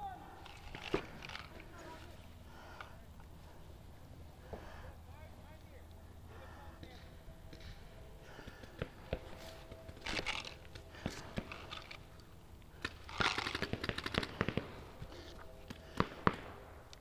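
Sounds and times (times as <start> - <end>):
paintball markers firing: 7.5 - 17.0.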